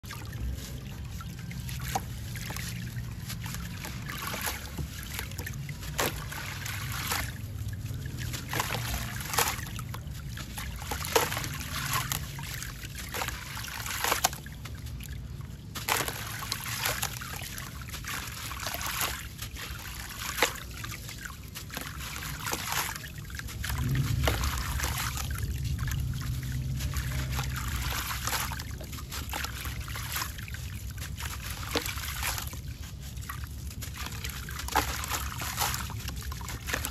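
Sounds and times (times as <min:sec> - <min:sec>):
sand trickling into water: 0:00.0 - 0:36.9
small splashes: 0:00.0 - 0:36.9
low rumble: 0:23.4 - 0:31.3.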